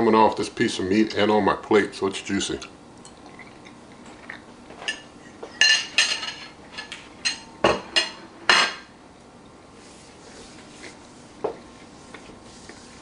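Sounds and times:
cutlery clinking against plate: 0:04.8 - 0:08.9.

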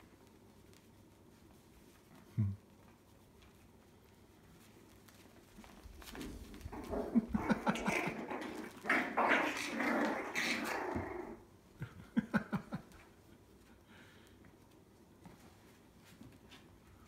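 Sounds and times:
puppies growling: 0:06.0 - 0:11.5.

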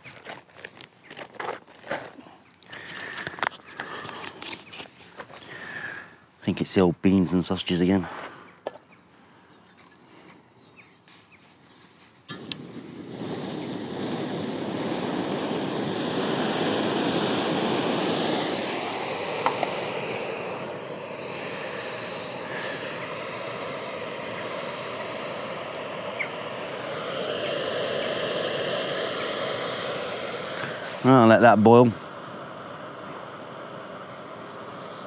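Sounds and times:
gas stove burner hissing: 0:12.3 - 0:35.0.

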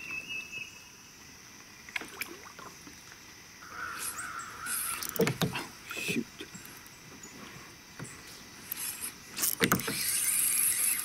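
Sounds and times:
bird harsh call: 0:03.6 - 0:05.1.

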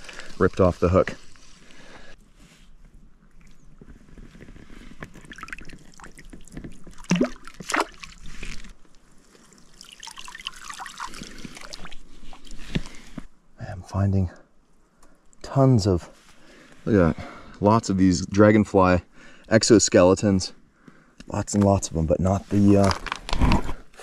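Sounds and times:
water sloshing and dribbling: 0:03.2 - 0:13.2
loud splashes: 0:07.0 - 0:08.1.

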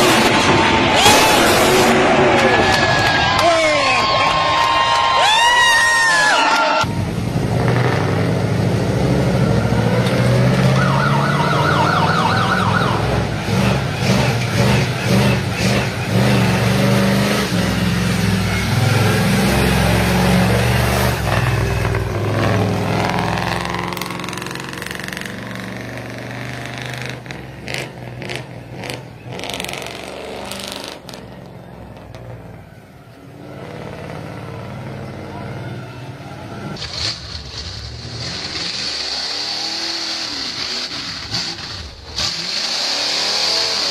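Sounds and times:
truck engine revving: 0:00.0 - 0:03.4, 0:06.8 - 0:43.9
siren: 0:10.6 - 0:13.3.

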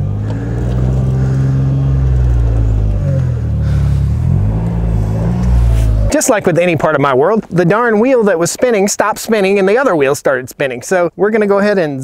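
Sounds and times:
utility vehicle engine revving: 0:00.0 - 0:07.9.

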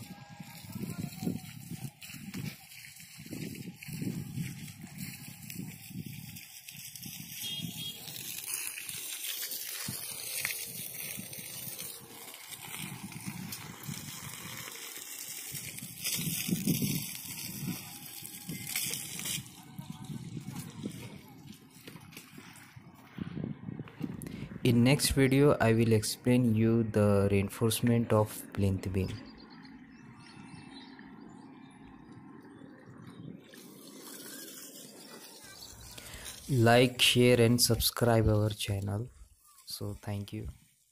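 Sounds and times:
hose spraying water on concrete: 0:00.0 - 0:22.4, 0:33.4 - 0:38.0, 0:40.6 - 0:40.9
low uneven rumble: 0:00.0 - 0:40.8
faint outdoor hiss: 0:33.6 - 0:40.9.

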